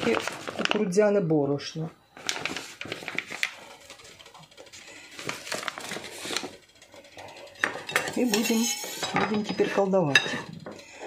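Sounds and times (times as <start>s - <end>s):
bag rustling and crackling: 0.0s - 1.0s, 2.2s - 7.6s.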